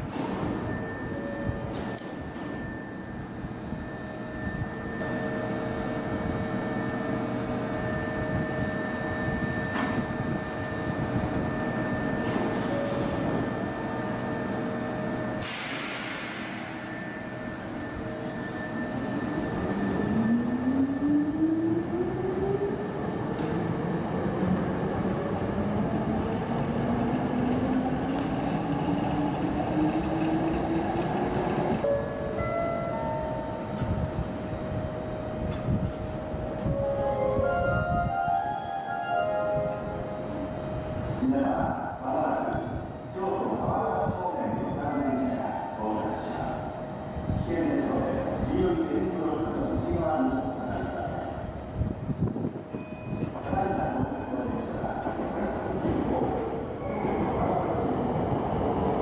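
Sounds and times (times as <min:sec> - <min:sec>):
train humming at platform: 0:00.0 - 0:59.0
short hiss of air: 0:15.4 - 0:17.1.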